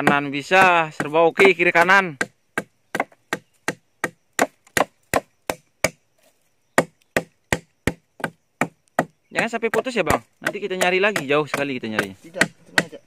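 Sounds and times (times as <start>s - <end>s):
machete chopping into log: 0.0s - 6.0s, 6.8s - 9.1s.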